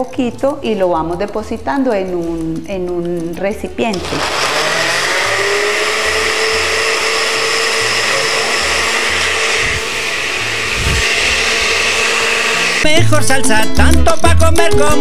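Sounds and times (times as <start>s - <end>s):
blender motor whining: 3.9s - 12.9s.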